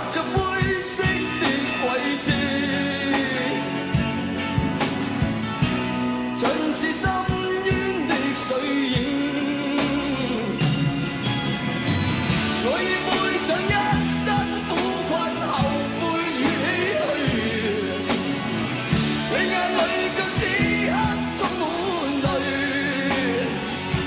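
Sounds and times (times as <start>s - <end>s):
man singing: 0.0s - 4.2s, 6.4s - 11.0s, 12.5s - 18.4s, 19.0s - 24.0s
guitar: 0.0s - 24.0s.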